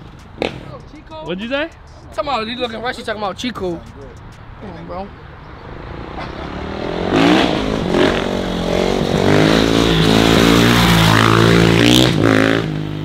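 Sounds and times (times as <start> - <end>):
dirt bike engine accelerating: 5.6 - 13.0.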